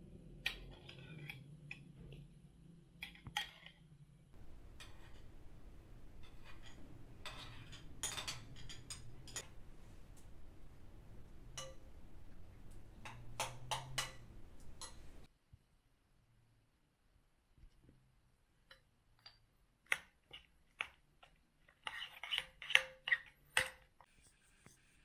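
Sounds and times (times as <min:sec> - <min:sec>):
low steady hum: 0:00.0 - 0:19.8
china dishes clinking: 0:06.1 - 0:09.6.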